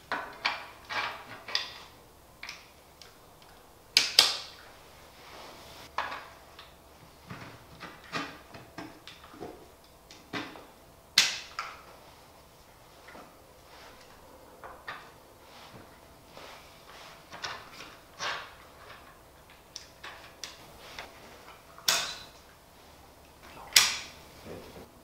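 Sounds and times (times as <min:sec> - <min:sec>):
plastic and metal chair parts knocking: 0:00.0 - 0:02.7, 0:05.9 - 0:11.9.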